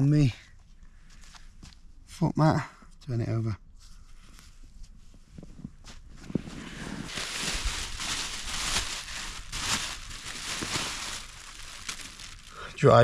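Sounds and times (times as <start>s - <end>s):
fabric bag rustling: 6.1s - 13.0s.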